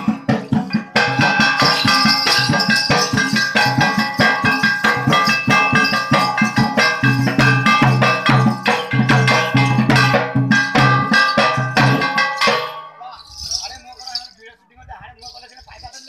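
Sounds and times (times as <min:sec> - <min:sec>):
drum beaten fast: 0:00.0 - 0:14.2
jingling metal percussion: 0:00.0 - 0:16.0.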